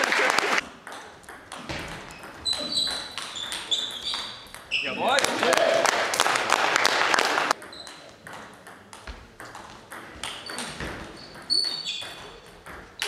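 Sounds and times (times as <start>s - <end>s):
clapping and voices: 0.0s - 0.6s, 5.1s - 7.6s.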